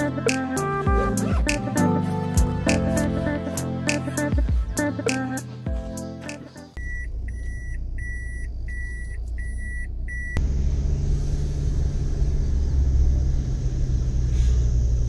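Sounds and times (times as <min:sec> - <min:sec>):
reverse warning beeps: 0:06.8 - 0:10.4
car engine hum: 0:06.8 - 0:15.0
road rumble: 0:06.8 - 0:15.0.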